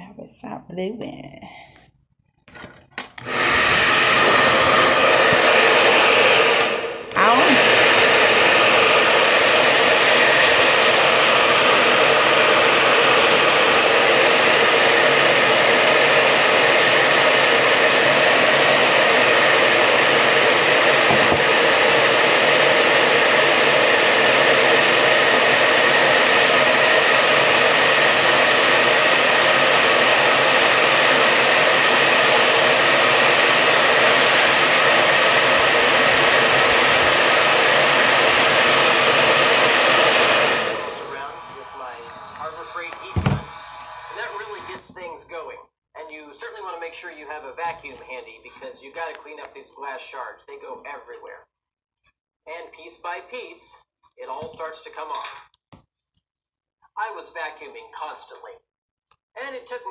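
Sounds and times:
hot-air blower rushing: 0:03.0 - 0:45.2.

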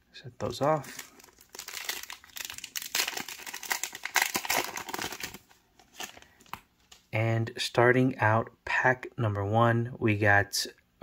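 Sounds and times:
foil wrapper tearing and crinkling: 0:00.8 - 0:06.3.

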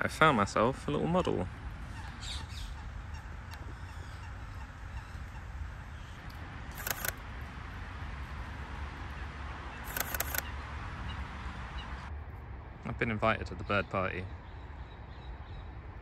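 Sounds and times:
low outdoor rumble: 0:00.0 - 0:16.0
camera shutter clicks: 0:06.7 - 0:07.2, 0:09.8 - 0:10.5.

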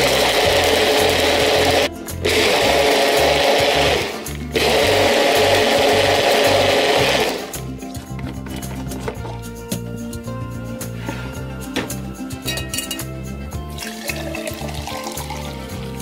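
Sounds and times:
blender motor running: 0:00.0 - 0:07.6.

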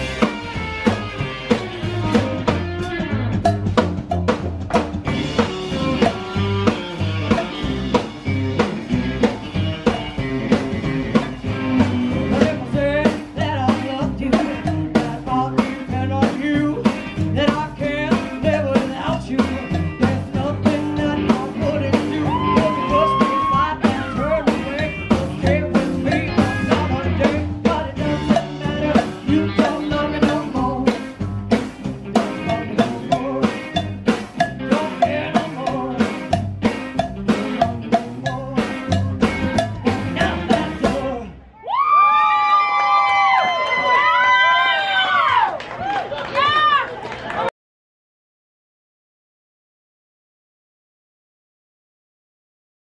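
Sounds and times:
drum kit beat: 0:00.0 - 0:41.4
upright double bass: 0:00.0 - 0:41.5
electric guitar: 0:00.0 - 0:41.7
woman singing: 0:12.3 - 0:31.0, 0:34.7 - 0:36.0.

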